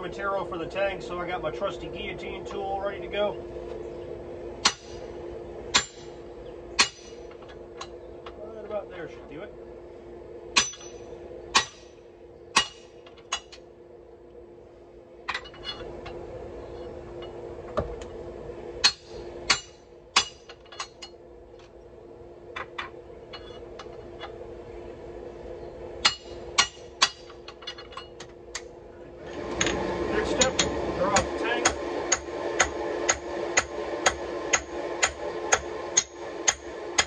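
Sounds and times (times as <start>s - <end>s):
hammer striking metal: 4.6s - 5.0s, 5.7s - 6.1s, 6.8s - 7.2s, 10.6s - 11.9s, 12.6s - 13.5s, 18.8s - 20.9s, 26.0s - 27.4s.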